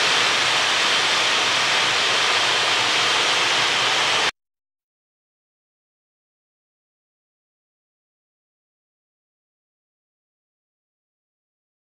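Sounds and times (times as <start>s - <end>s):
steam hissing from safety valves: 0.0s - 4.3s.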